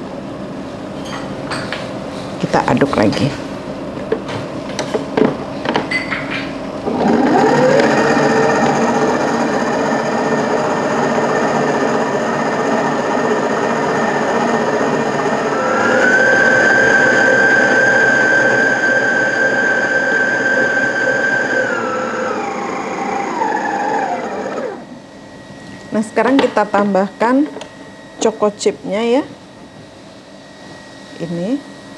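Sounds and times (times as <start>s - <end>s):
stand mixer motor whining: 6.8s - 25.0s.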